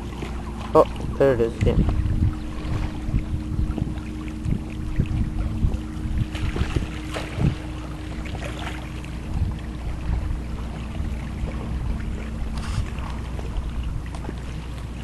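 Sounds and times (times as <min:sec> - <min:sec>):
faint steady hum: 0:00.0 - 0:15.0
waves lapping against kayak hull: 0:00.0 - 0:15.0
wind rumble on microphone: 0:00.0 - 0:15.0
splashes and knocks: 0:06.2 - 0:09.1.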